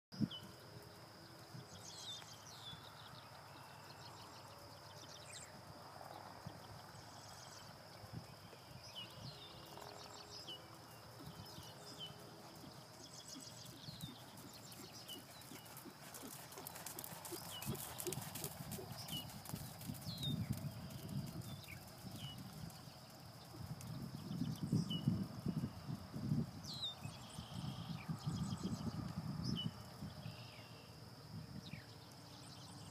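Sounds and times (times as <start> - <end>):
horse hoofbeats on sand: 10.8 - 24.0.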